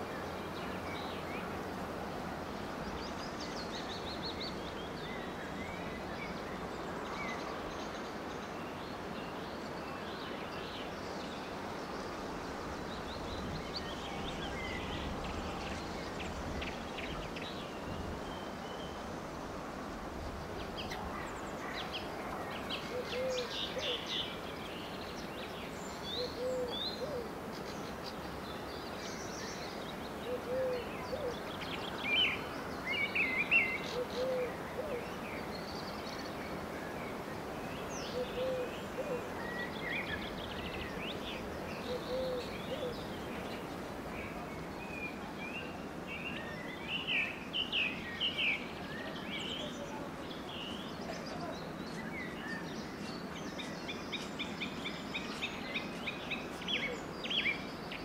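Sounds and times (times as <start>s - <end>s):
songbirds chirping and trilling: 0.0s - 58.0s
pigeon cooing: 22.9s - 24.0s, 26.3s - 27.3s, 30.3s - 31.3s, 33.9s - 35.0s, 38.1s - 39.3s, 41.9s - 42.9s.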